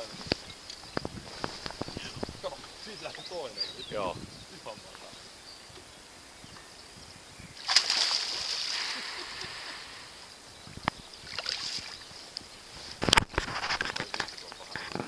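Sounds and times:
water splashing and sloshing: 7.6 - 10.2, 11.2 - 12.2.

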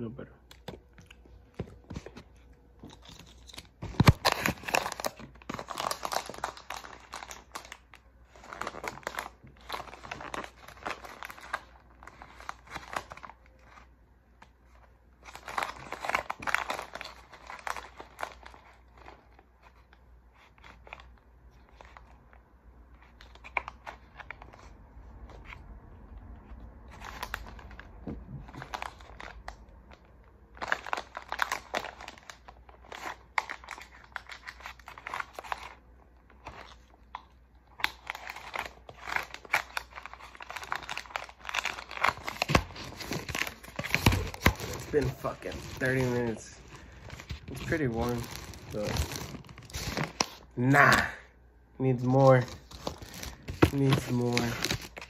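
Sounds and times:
packaging pouch crinkling: 37.8 - 50.5, 52.1 - 55.0.

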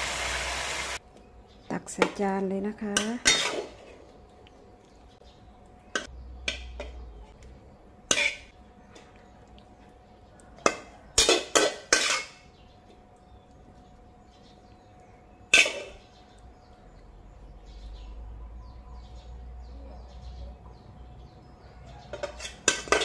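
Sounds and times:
spatula scraping a wok: 8.1 - 8.5, 10.6 - 12.4, 15.5 - 16.0, 22.1 - 23.0.

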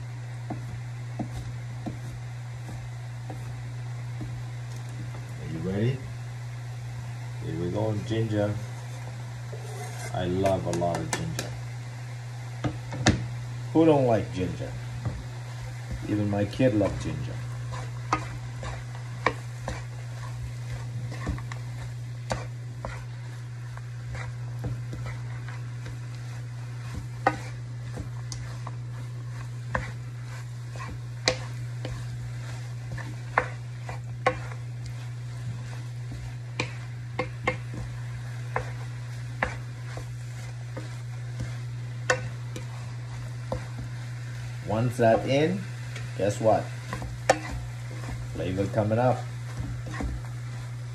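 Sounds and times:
frying sizzle: 0.0 - 50.9
spatula knocking in wok: 35.4 - 42.7.

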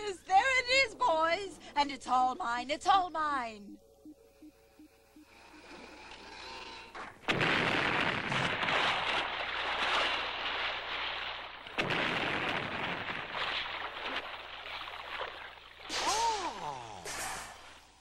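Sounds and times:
cartoon explosion crash: 7.3 - 9.0, 11.8 - 13.3, 15.9 - 17.6.

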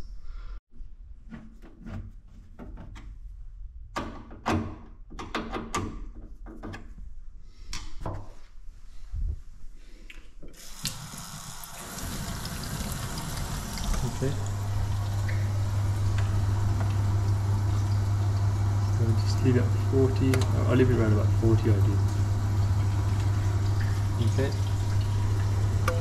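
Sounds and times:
water running into steel sink: 10.6 - 26.0.

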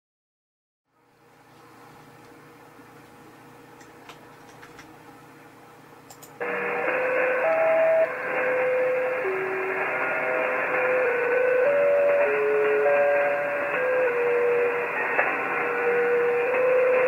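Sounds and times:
faint clicks: 6.1 - 6.4
radio interval tune melody: 6.4 - 17.0
radio static hiss: 6.4 - 17.0.

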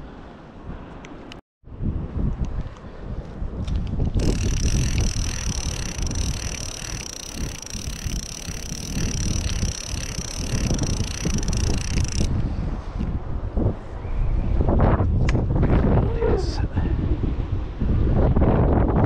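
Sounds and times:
wind buffeting microphone: 1.6 - 19.0
fishing reel spool whirring: 4.2 - 12.3.

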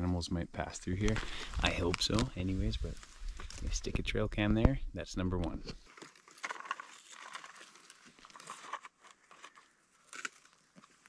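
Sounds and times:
strap rustling and scraping: 5.4 - 11.0.

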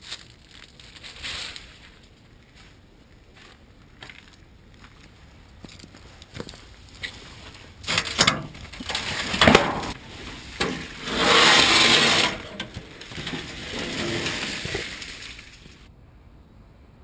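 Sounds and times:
steel sheet knocks and clanks: 7.9 - 10.0, 10.6 - 15.1
steel sheet scraping over concrete: 7.9 - 15.9.

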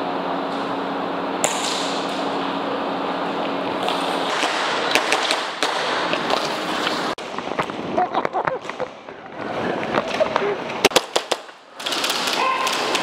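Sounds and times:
airsoft pistol shots: 10.8 - 12.4.

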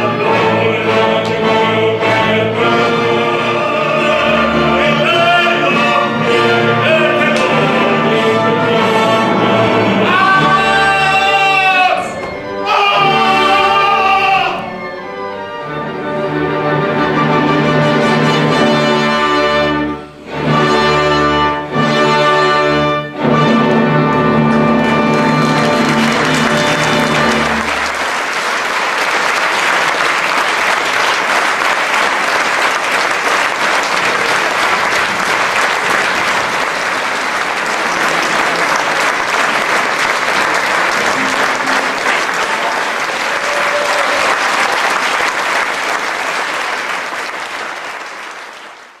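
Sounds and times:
audience applauding: 24.0 - 49.0
orchestra held chord: 37.5 - 43.4.

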